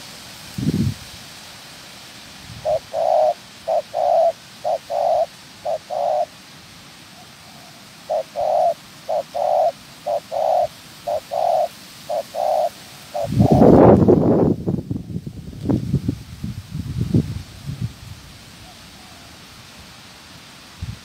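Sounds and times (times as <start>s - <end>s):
dove cooing: 2.6s - 6.4s, 7.1s - 14.0s.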